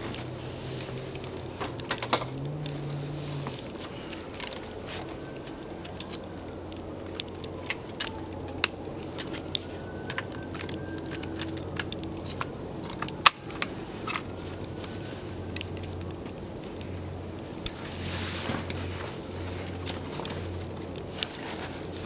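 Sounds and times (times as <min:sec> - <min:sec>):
camping gear clicks and rustles: 0:00.0 - 0:22.0.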